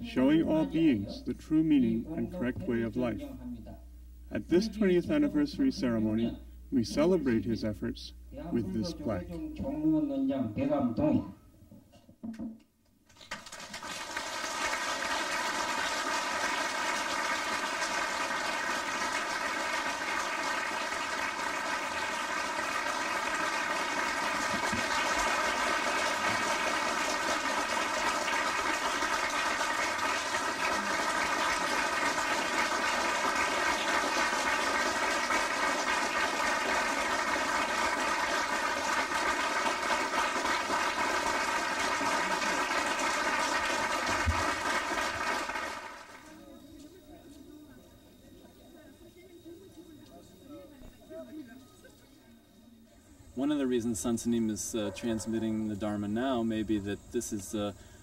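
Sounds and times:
audience applauding: 13.1 - 46.3.

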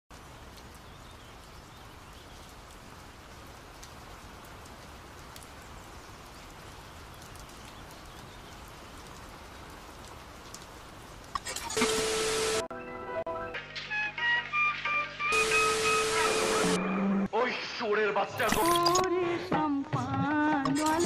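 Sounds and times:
light ticks: 10.0 - 11.4
faint steady hiss: 15.3 - 16.8.

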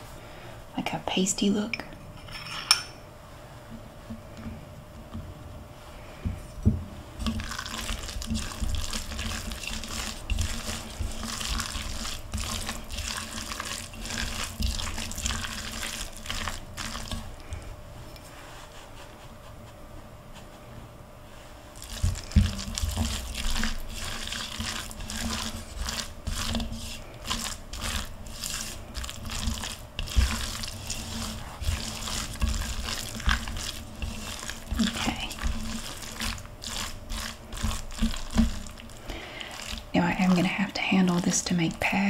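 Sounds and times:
spatula squelching in wet mixture: 7.2 - 17.7, 21.7 - 42.0.

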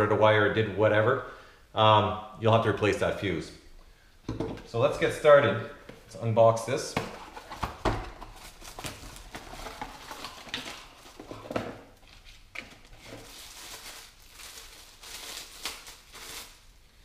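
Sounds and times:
plastic bag rustling and crinkling: 7.1 - 16.8.

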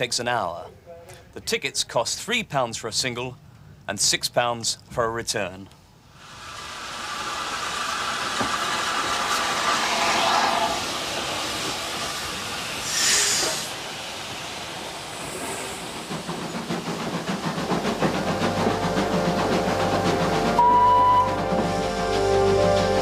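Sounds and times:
steam hissing: 6.1 - 23.0
short burst of steam hiss: 6.2 - 17.0
train rolling: 6.2 - 23.0.

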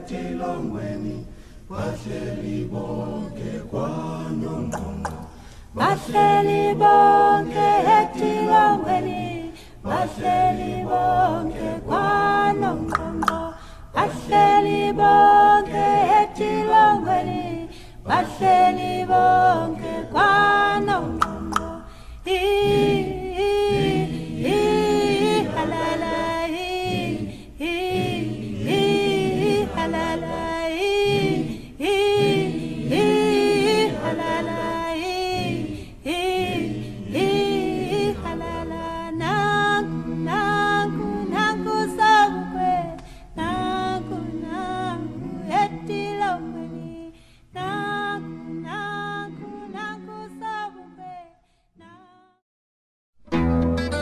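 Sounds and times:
a cappella singing voices: 0.0 - 52.4.

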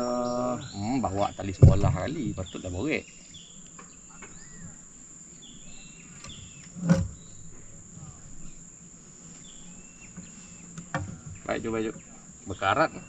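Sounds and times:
high-pitched insect drone: 0.0 - 13.0
sharp loud thump: 1.4 - 2.6.

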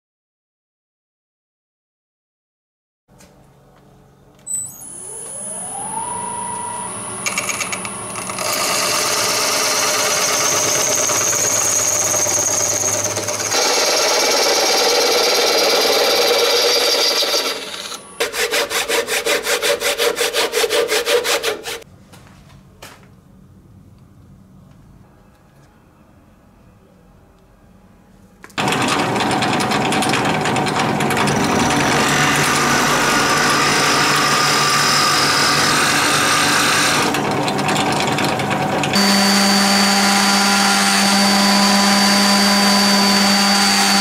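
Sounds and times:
lathe motor whine: 4.5 - 18.8, 28.6 - 44.0
turning tool scraping: 6.9 - 21.8, 29.4 - 44.0.

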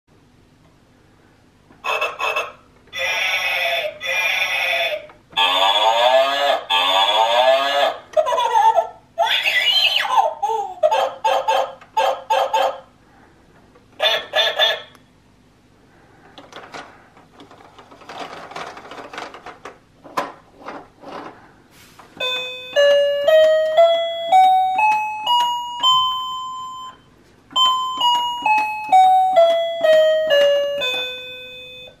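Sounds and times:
recorded animal sound effect: 1.8 - 8.0, 9.2 - 10.2, 14.0 - 15.0
electronic toy piano notes: 22.2 - 32.0.

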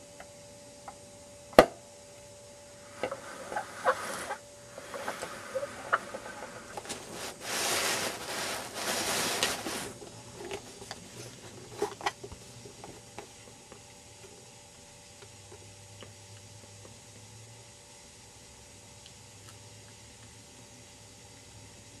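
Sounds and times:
faint steady hum: 0.0 - 22.0
rustling scraping noise: 2.9 - 12.2.

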